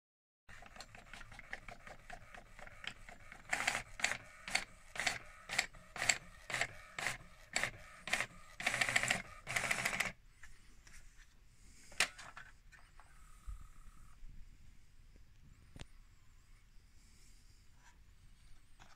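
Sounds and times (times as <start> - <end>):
printer paper feed: 0.5 - 10.2.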